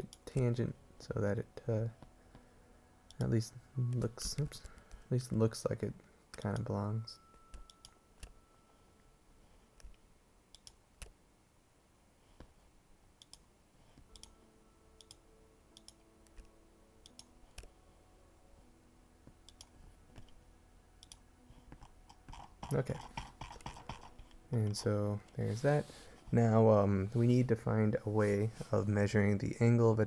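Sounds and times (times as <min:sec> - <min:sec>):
computer mouse clicking: 0:07.5 - 0:08.3, 0:09.8 - 0:11.2, 0:13.2 - 0:13.4, 0:14.0 - 0:14.3, 0:15.0 - 0:15.2, 0:15.8 - 0:17.7, 0:19.5 - 0:20.4, 0:21.0 - 0:24.8.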